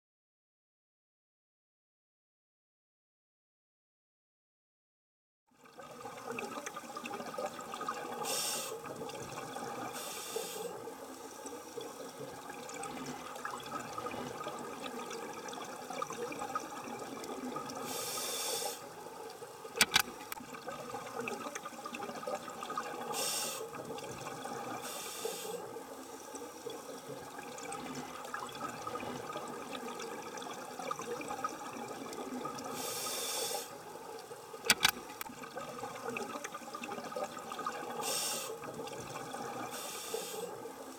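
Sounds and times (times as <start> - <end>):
underwater watery noise: 5.6 - 40.9
sharp clicks: 19.8 - 20.4, 34.7 - 35.3.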